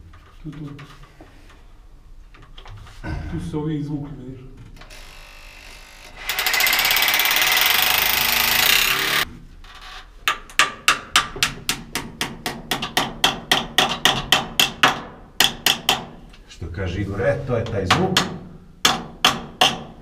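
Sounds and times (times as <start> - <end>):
power tool running: 4.9 - 9.2.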